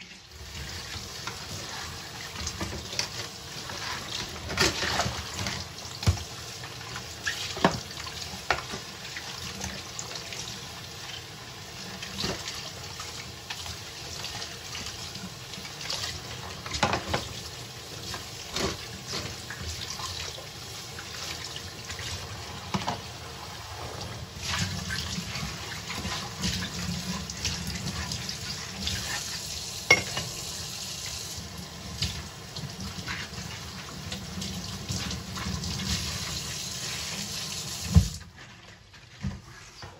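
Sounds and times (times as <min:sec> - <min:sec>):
tap water running: 0:00.0 - 0:39.9
dishes clinking and knocking: 0:16.7 - 0:17.3, 0:29.9 - 0:30.4.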